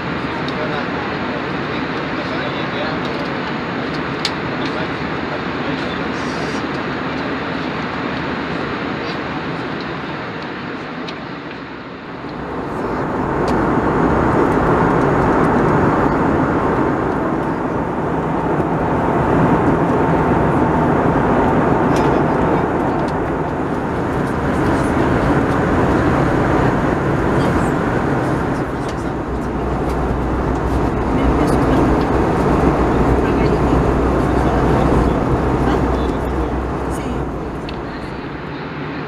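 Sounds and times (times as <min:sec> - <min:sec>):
jet engines humming: 0:00.0 - 0:39.0.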